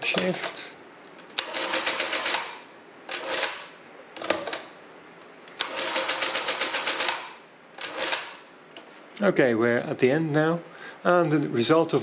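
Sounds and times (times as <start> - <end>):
mechanical calculator clicking rapidly: 1.4 - 3.6, 5.6 - 8.4.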